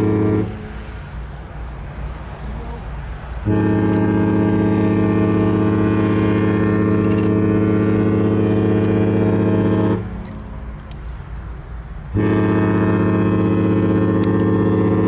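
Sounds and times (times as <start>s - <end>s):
ship horn blasts: 0.0s - 1.2s, 2.8s - 10.7s, 12.1s - 15.0s.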